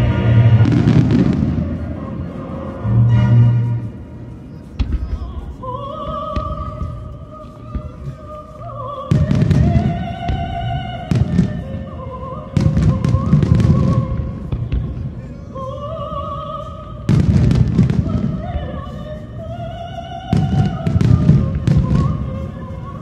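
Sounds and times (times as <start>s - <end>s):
operatic singing with vibrato: 0.0s - 23.0s
fireworks booming and cracking: 0.4s - 2.2s, 9.1s - 11.7s, 12.6s - 15.4s, 17.1s - 18.5s, 20.3s - 23.0s.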